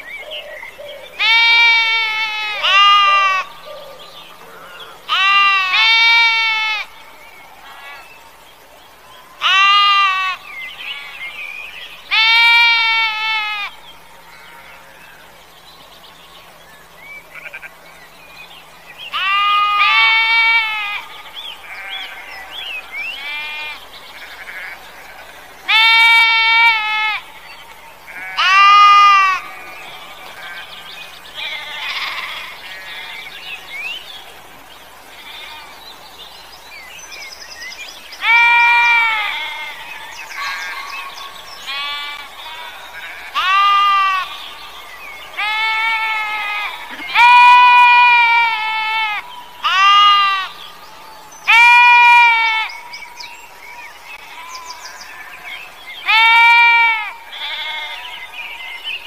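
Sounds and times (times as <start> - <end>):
sheep bleating: 1.2 - 3.5, 5.1 - 6.9, 17.4 - 17.7, 19.1 - 21.0, 21.6 - 22.3, 23.2 - 27.4, 28.1 - 30.7, 31.4 - 33.2, 41.6 - 44.4, 45.4 - 50.5, 56.1 - 58.1.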